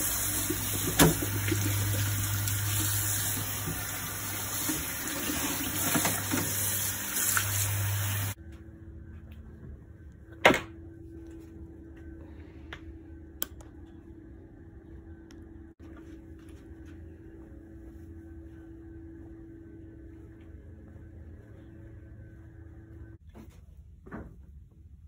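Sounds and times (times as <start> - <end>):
tap water splashing into sink: 0.4 - 4.0
quiet steady hum: 8.3 - 25.0.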